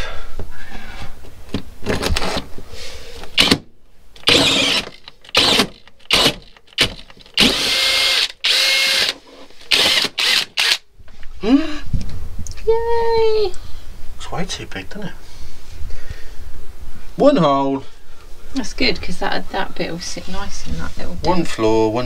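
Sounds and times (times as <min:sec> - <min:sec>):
cordless drill with hole saw: 0:03.4 - 0:03.6, 0:04.2 - 0:10.8.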